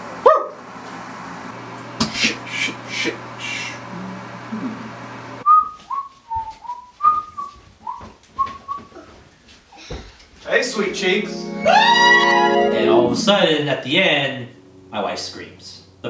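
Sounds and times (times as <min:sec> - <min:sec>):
man whistling a tune: 0:05.4 - 0:08.9
steady hiss with low hum: 0:07.6 - 0:16.0.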